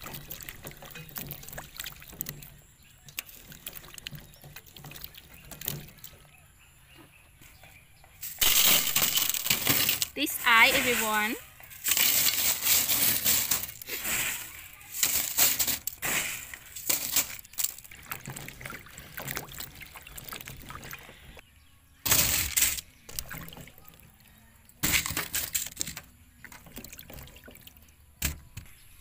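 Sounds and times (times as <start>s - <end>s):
water sloshing and splashing: 0.0s - 6.9s, 8.2s - 21.4s, 22.0s - 28.8s
crushed ice clinking: 8.2s - 18.4s.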